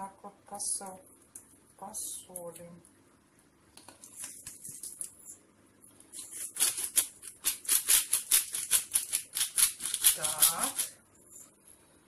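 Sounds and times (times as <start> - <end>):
salt shaker shaking: 6.2 - 11.5.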